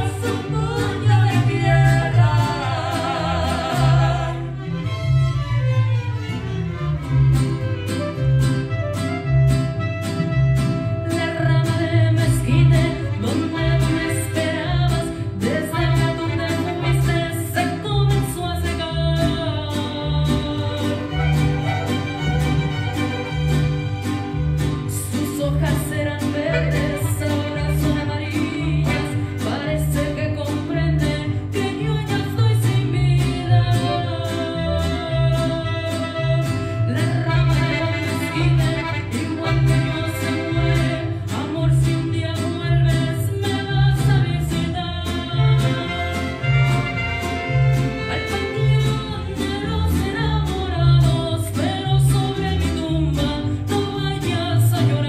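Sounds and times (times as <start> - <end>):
woman singing into a microphone: 0.0 - 4.6, 11.0 - 21.6, 24.9 - 46.6, 48.0 - 55.0
low bass line: 0.0 - 55.0
strummed guitars: 0.0 - 55.0
violins: 2.1 - 11.5, 20.6 - 25.2, 25.8 - 30.3, 33.2 - 42.2, 43.9 - 50.2.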